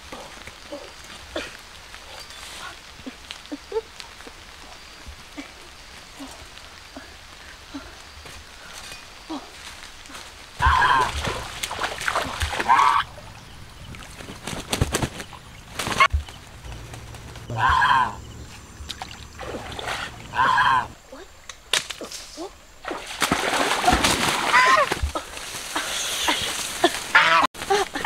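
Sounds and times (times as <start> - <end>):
water splashing: 10.0 - 21.2, 22.7 - 27.8
goose honking: 27.1 - 27.5.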